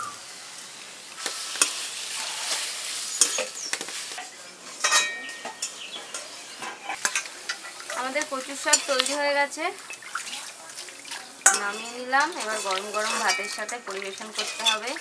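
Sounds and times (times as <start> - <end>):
frying sizzle: 0.0 - 15.0
spatula scraping metal pan: 11.5 - 15.0.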